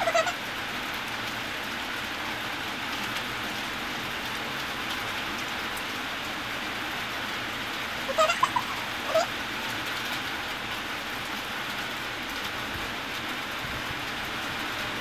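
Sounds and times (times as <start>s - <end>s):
short high-pitched calls: 0.0s - 0.4s, 8.1s - 9.3s.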